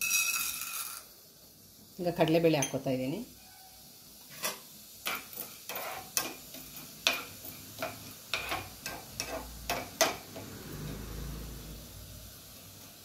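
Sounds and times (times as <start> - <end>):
spoon scraping frying pan: 4.2 - 11.1.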